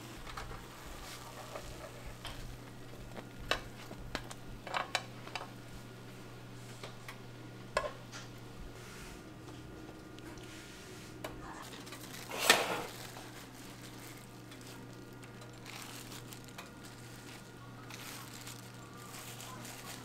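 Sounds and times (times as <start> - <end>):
low steady hum: 0.0 - 20.0
kitchen utensils handling: 11.8 - 13.1.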